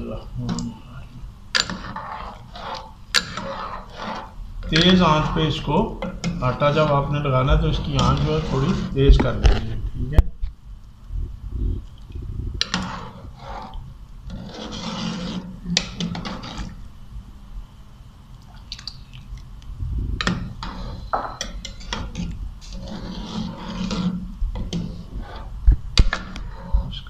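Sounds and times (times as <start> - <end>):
spoon scraping metal pot: 1.6 - 7.1, 7.7 - 9.0, 12.6 - 16.8, 20.2 - 27.0
liquid sloshing: 18.4 - 24.1.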